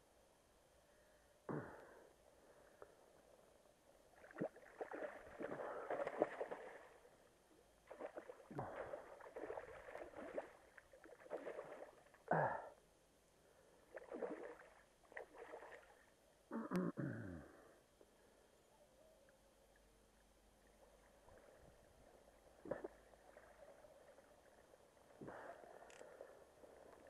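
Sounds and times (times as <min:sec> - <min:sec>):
fish thrashing and splashing water: 0:04.2 - 0:07.1, 0:07.9 - 0:12.1, 0:14.0 - 0:16.0.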